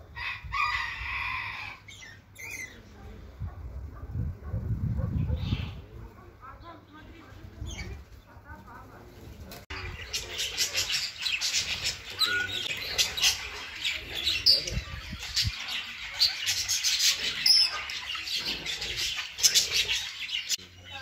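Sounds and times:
budgerigars chattering: 9.7 - 21.0.

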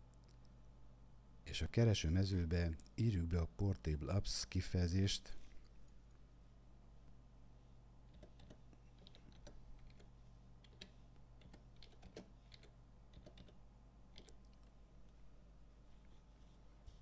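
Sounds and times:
faint keyboard typing: 8.1 - 14.8.

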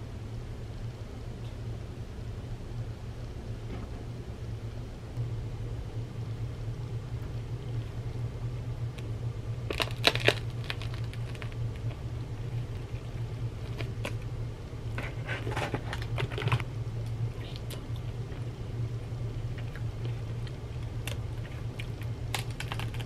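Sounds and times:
steady low hum: 0.0 - 23.0
crusty bread crunching: 8.9 - 18.6, 19.3 - 23.0.

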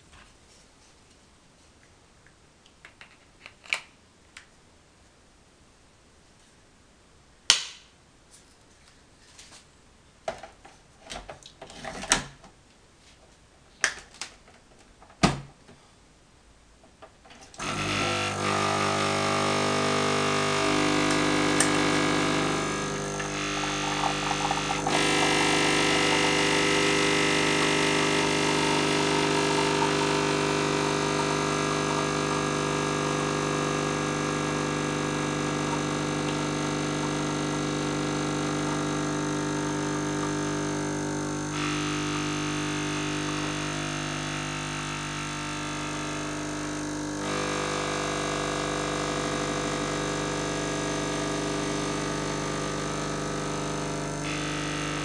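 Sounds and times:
coffee machine pump humming: 17.5 - 55.0.

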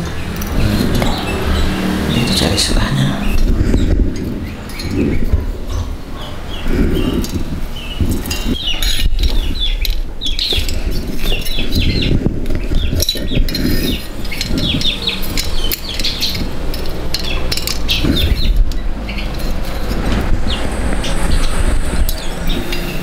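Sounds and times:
small birds chirping: 0.0 - 23.0
wrench clinking on metal: 12.5 - 20.0.

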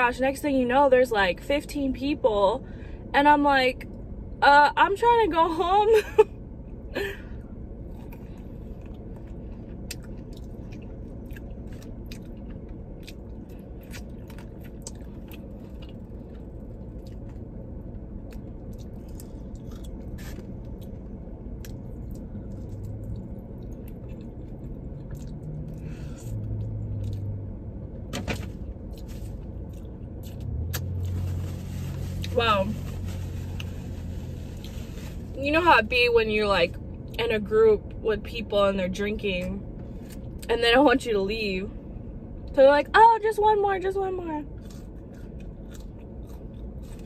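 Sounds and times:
steady low hum: 0.0 - 47.0
chewing and lip-smacking: 7.9 - 27.3, 28.8 - 30.9, 44.6 - 47.0.

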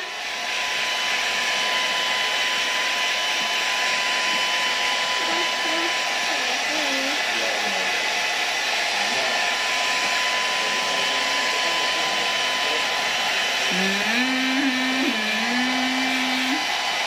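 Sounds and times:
hair dryer blowing: 0.0 - 17.0
person humming a low note: 13.7 - 16.6.

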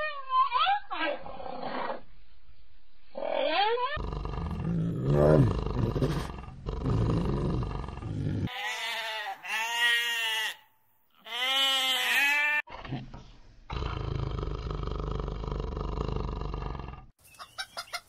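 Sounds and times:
low growling animal calls: 3.2 - 8.5
goats bleating: 8.4 - 10.6.

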